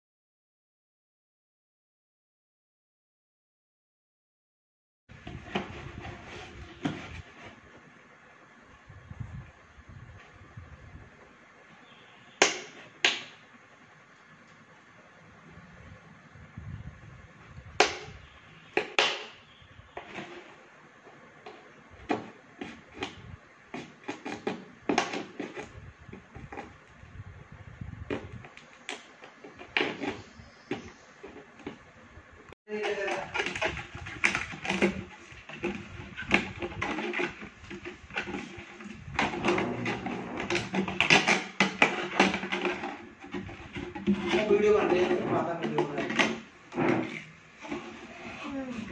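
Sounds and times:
plastic bottle crackling: 32.8s - 48.9s.

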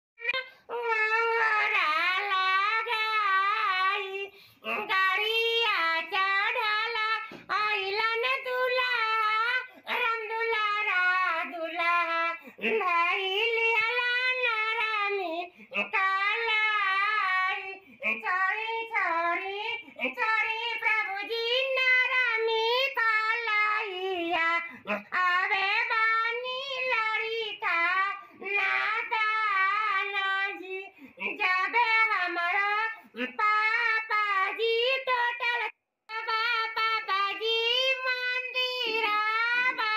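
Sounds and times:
man singing in high voice: 0.2s - 39.9s
singer breathing: 4.3s - 4.6s, 12.4s - 12.6s, 30.9s - 31.2s.

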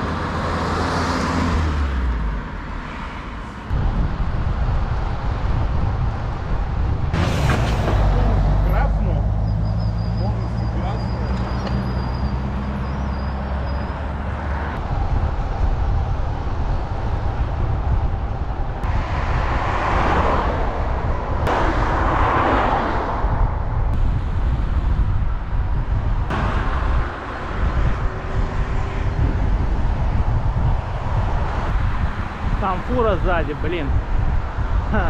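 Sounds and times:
wind rumbling on microphone: 0.0s - 9.6s, 13.8s - 35.0s
road traffic: 0.0s - 35.0s
vehicles passing by: 0.0s - 35.0s.

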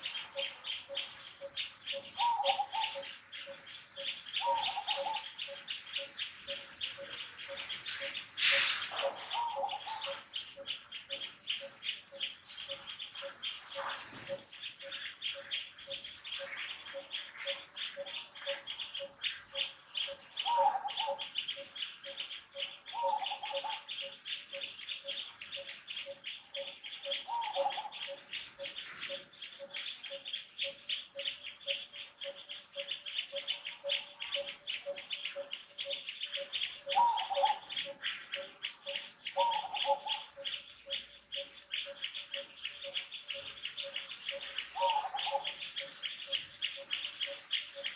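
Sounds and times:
insects chirring: 0.0s - 47.9s
bird repeating low note: 0.2s - 7.3s, 26.0s - 47.9s
short falling bird calls: 7.6s - 10.3s.

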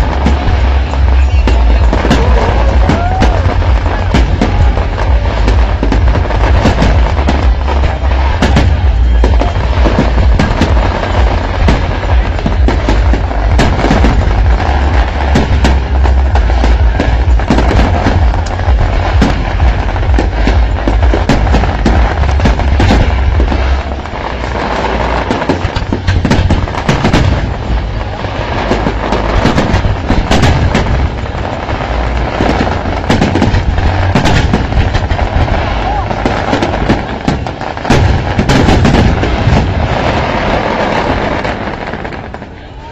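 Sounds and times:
crowd voices: 0.0s - 42.9s
fireworks bangs and crackles: 0.0s - 42.9s.

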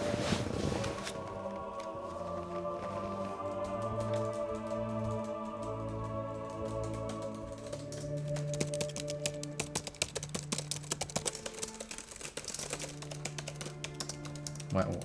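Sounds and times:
background music: 0.0s - 15.0s
fast typing on laptop keyboard: 3.6s - 15.0s.

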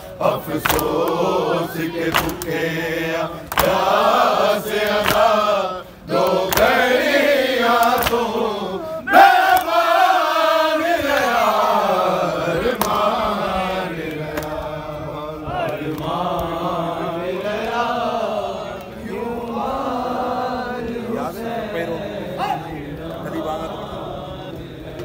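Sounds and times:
men chanting a lament: 0.0s - 25.0s.

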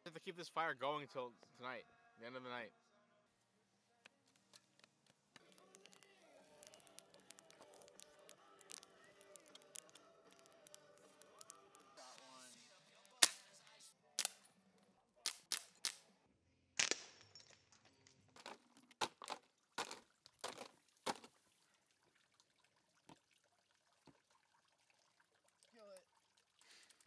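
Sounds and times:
sharp cracks: 4.8s - 12.4s, 13.0s - 14.5s, 15.2s - 16.1s, 16.8s - 17.4s.

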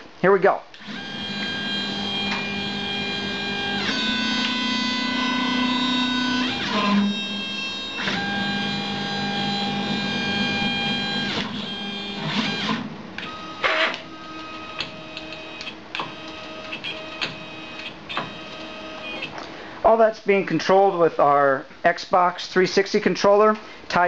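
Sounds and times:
motor whine: 0.8s - 19.4s.

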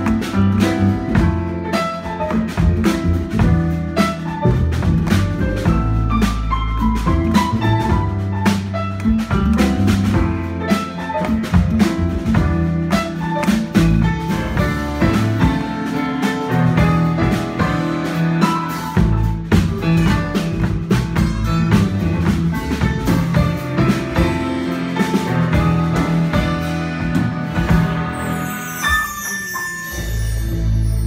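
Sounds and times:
double bass: 0.0s - 31.0s
grand piano: 0.0s - 31.0s.

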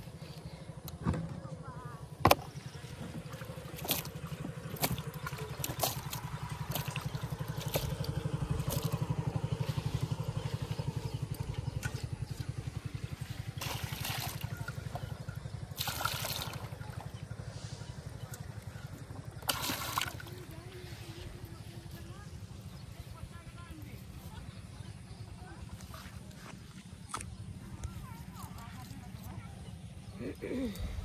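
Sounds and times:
engine running low thrum: 0.0s - 31.0s
water splashing and trickling: 2.3s - 22.7s.

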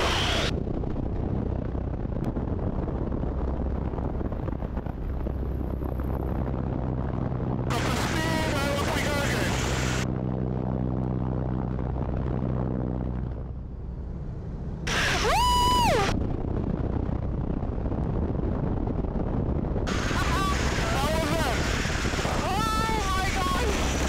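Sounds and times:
biplane engine droning: 0.0s - 24.0s
wind rush: 0.0s - 24.0s
person whooping: 15.0s - 16.1s.

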